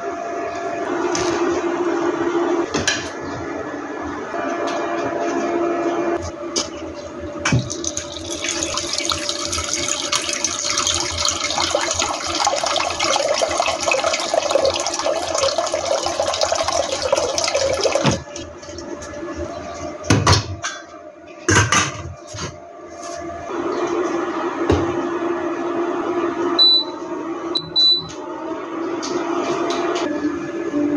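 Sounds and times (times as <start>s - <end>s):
water pouring into metal pot: 7.6s - 18.1s.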